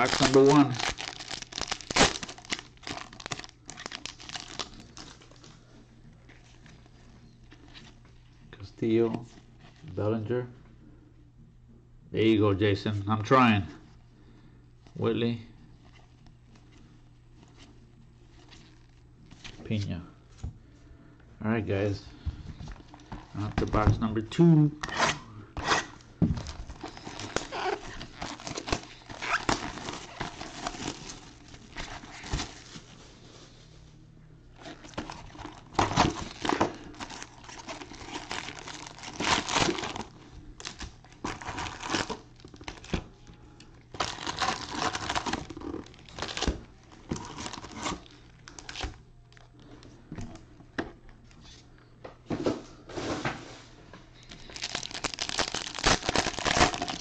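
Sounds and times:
foil tearing: 0:00.0 - 0:05.0, 0:26.8 - 0:32.9, 0:34.6 - 0:42.9, 0:44.0 - 0:48.9, 0:54.5 - 0:57.0
foil wrappers crinkling: 0:00.0 - 0:05.5, 0:26.4 - 0:33.6, 0:34.6 - 0:43.2, 0:43.9 - 0:49.5, 0:54.2 - 0:57.0.

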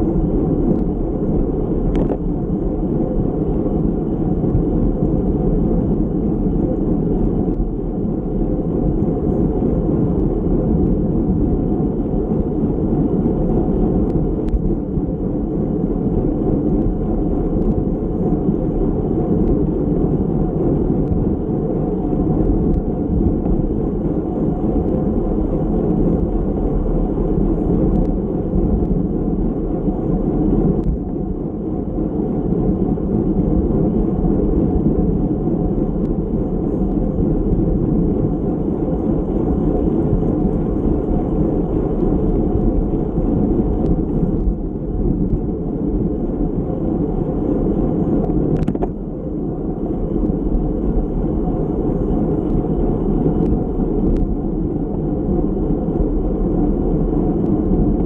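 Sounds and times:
wind rushing over microphone: 0:00.0 - 0:58.0.

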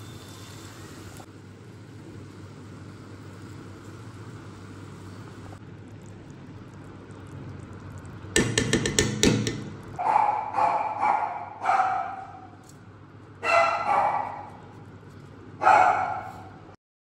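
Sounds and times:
dog barking: 0:10.0 - 0:12.6, 0:13.4 - 0:14.6, 0:15.6 - 0:16.6.

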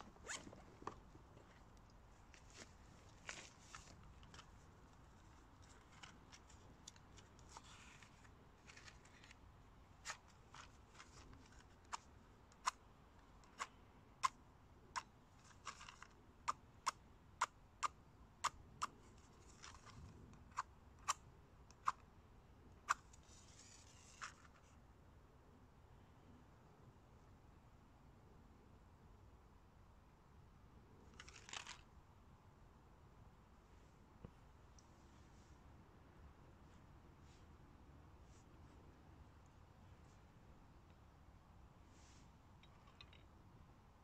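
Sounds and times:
soft rustling: 0:00.0 - 0:12.1, 0:41.8 - 0:43.2.

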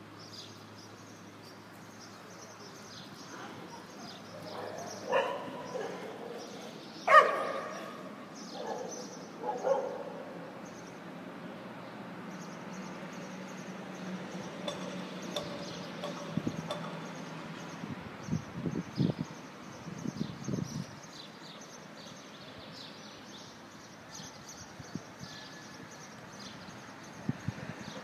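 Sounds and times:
street background noise: 0:00.0 - 0:28.0
dog barking: 0:03.7 - 0:06.4, 0:07.1 - 0:10.3.

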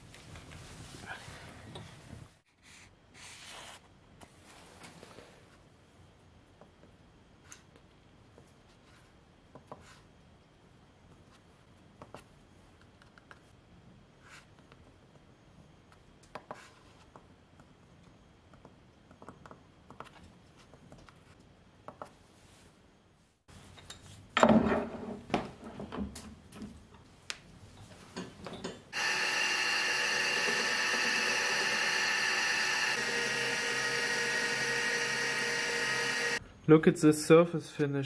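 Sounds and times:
metal lathe machining whine: 0:29.0 - 0:36.4.

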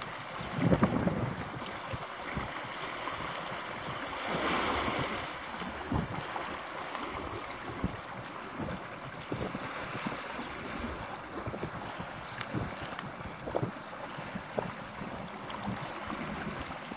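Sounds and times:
rushing water: 0:00.0 - 0:16.9
wind buffeting microphone: 0:00.0 - 0:16.9.

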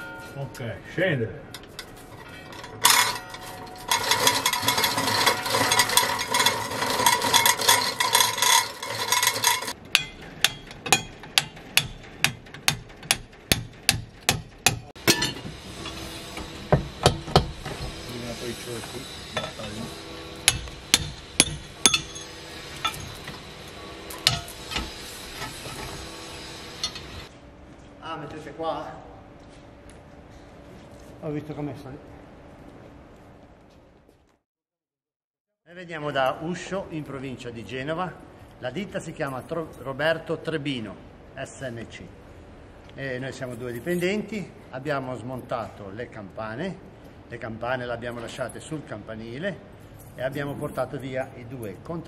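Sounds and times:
metal chain rattling: 0:01.5 - 0:13.0
hammer blows on iron: 0:10.0 - 0:27.3.

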